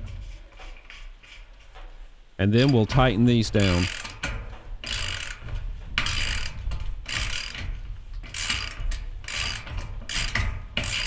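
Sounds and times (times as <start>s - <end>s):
ratchet wrench clicking: 2.6s - 2.9s, 3.6s - 11.0s.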